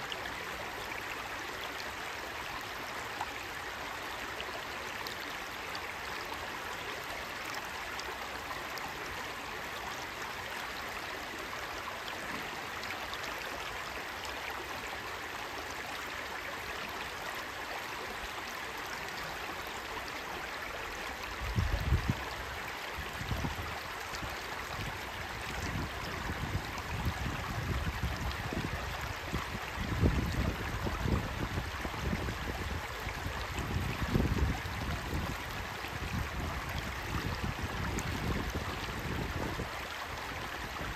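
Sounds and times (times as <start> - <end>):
stream babbling over stones: 0.0 - 40.9
wind gusts on microphone: 21.4 - 22.2, 25.5 - 39.7.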